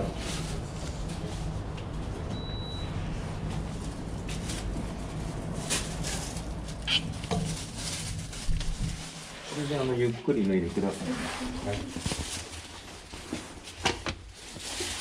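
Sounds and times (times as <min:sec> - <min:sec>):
low steady rumble: 0:00.0 - 0:10.0.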